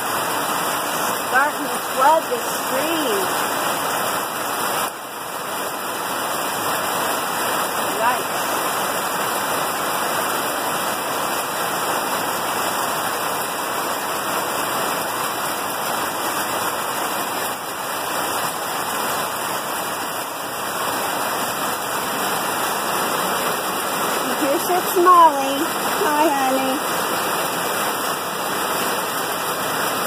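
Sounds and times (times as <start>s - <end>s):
heavy rain pouring: 0.0s - 30.0s.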